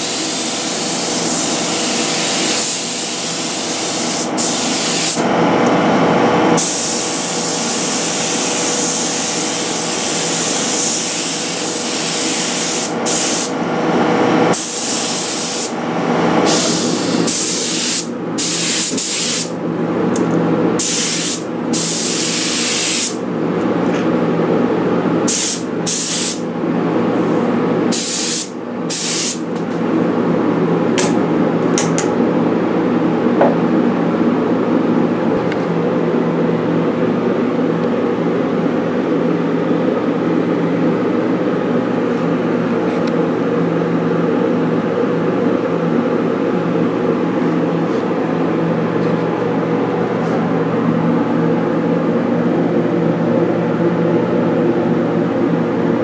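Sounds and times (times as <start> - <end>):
paint spray gun hissing: 0.0 - 5.2, 6.6 - 13.6, 14.5 - 15.8, 16.5 - 19.5, 20.8 - 23.2, 25.3 - 26.4, 27.9 - 29.4
steady hum: 0.0 - 56.0.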